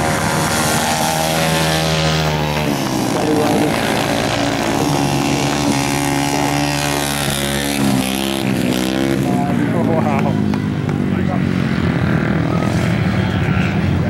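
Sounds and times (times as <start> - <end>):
motorcycle engines racing: 0.0 - 14.0.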